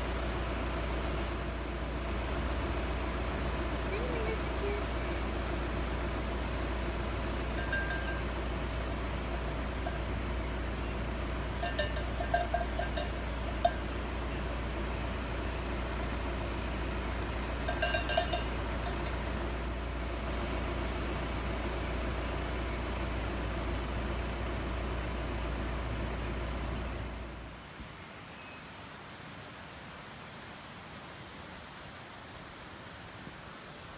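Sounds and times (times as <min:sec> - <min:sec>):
steady low rumble: 0:00.0 - 0:27.6
metal bell clanking: 0:07.5 - 0:10.3, 0:11.4 - 0:14.0, 0:17.6 - 0:19.4.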